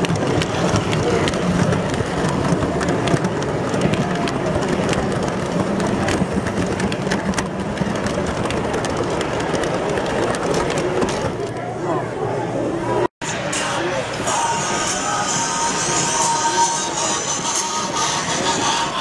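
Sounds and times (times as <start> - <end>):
wheels clicking on track: 0.0 - 11.6.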